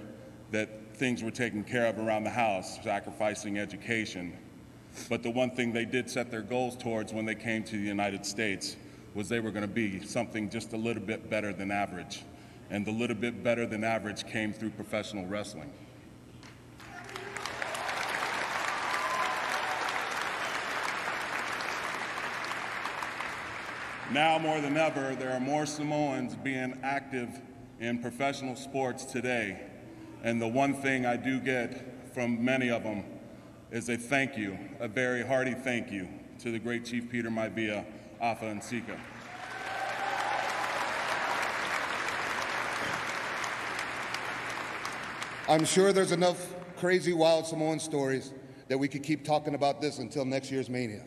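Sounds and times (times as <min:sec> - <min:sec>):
large audience applauding: 0:16.8 - 0:25.2, 0:39.0 - 0:46.1.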